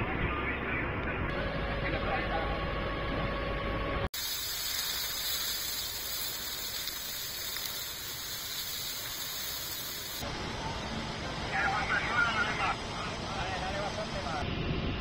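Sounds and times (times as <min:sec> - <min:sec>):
fire crackling and hissing: 0:04.1 - 0:10.2.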